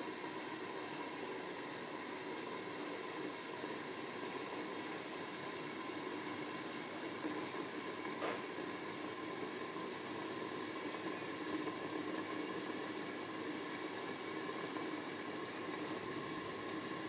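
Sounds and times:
food cooking in covered pan: 0.0 - 17.0.

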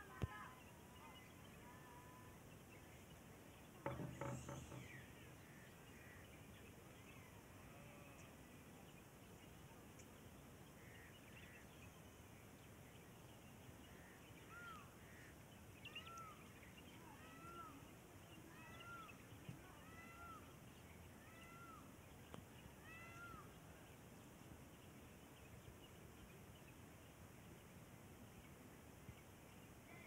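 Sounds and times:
faint animal calls: 17.0 - 22.0, 22.7 - 23.6.

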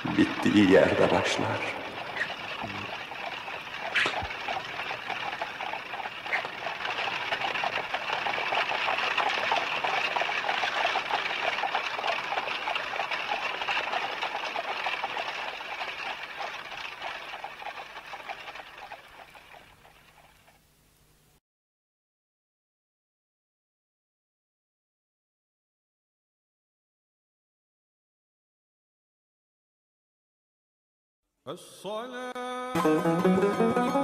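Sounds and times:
running water splashing: 0.0 - 20.6.

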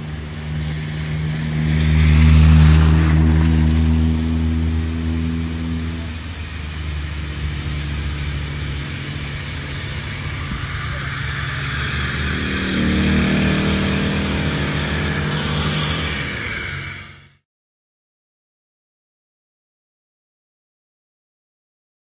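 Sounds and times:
vehicle engine humming: 0.0 - 17.4
continuous hiss: 5.4 - 12.6.

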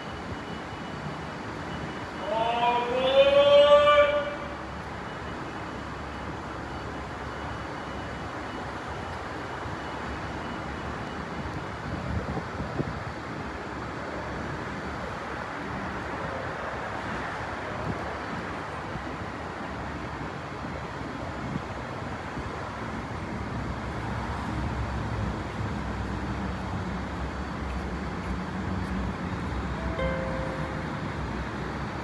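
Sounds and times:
train car rumble and hiss: 0.0 - 32.0
low hum: 29.8 - 31.7.

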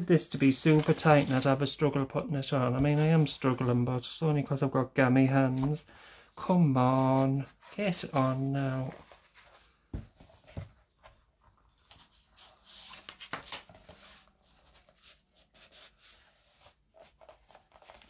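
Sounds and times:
pen pouch rustling on notebook: 13.7 - 18.0.

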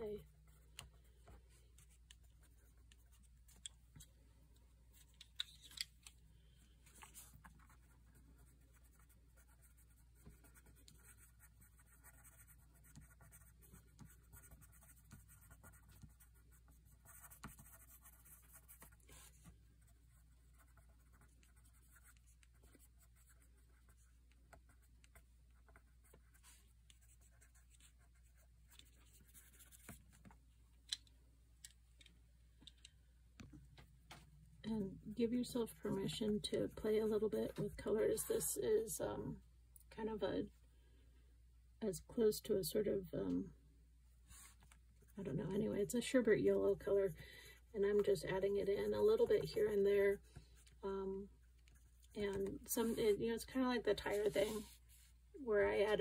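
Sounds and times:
pencil scratching on paper: 6.9 - 30.4.

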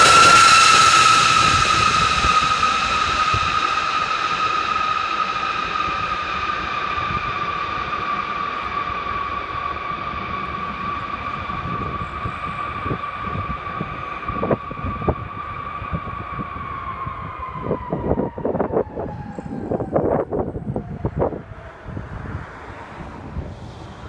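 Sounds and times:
deep aircraft rumble: 0.0 - 24.0
jet engines whining: 0.0 - 24.0
wind buffeting microphone: 0.0 - 24.0.

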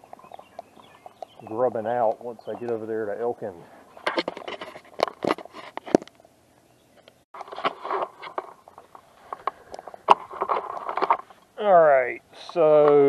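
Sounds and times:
footsteps crunching on a trail: 0.0 - 1.6.

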